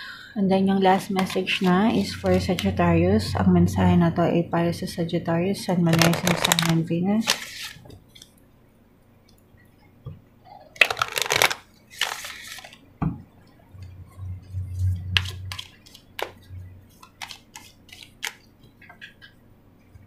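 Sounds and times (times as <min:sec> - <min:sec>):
cards rustling: 0:00.9 - 0:02.7, 0:05.9 - 0:08.3, 0:10.8 - 0:12.8, 0:15.2 - 0:18.5
cards clicking and slapping: 0:10.8 - 0:12.8, 0:15.2 - 0:18.5.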